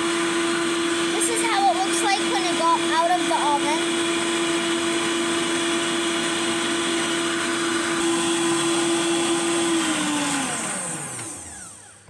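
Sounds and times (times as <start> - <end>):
stand mixer motor whine: 0.0 - 12.0
whisking noise: 0.9 - 4.7.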